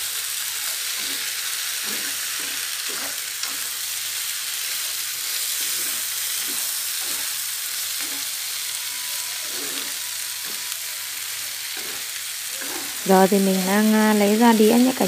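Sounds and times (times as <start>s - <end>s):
food sizzling in a frying pan: 0.0s - 15.0s
chopsticks stirring food: 5.6s - 7.4s, 9.4s - 10.7s.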